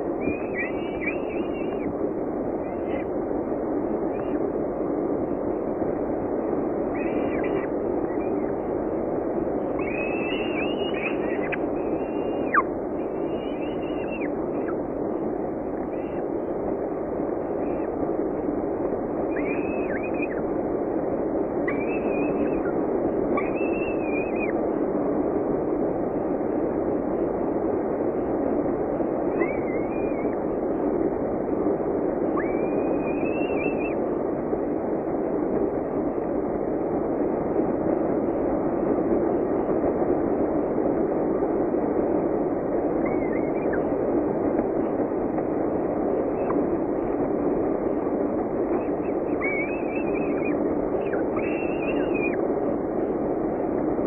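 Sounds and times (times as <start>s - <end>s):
falcon chicks begging calls: 9.8s - 14.8s.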